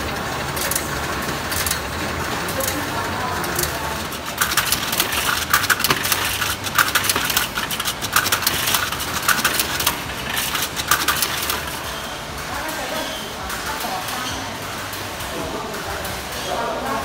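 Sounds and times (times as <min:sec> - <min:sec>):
rapid clicking and clattering: 0:00.0 - 0:12.0
machine humming: 0:00.0 - 0:17.0.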